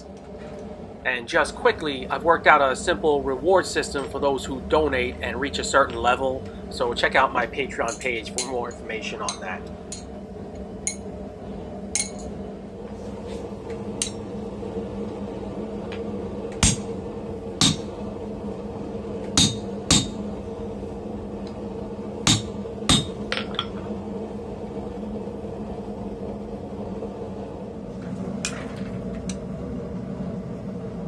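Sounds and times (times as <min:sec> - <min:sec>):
steady low hum: 0:00.0 - 0:31.0
hammer striking metal tool: 0:17.6 - 0:17.9, 0:19.4 - 0:20.1.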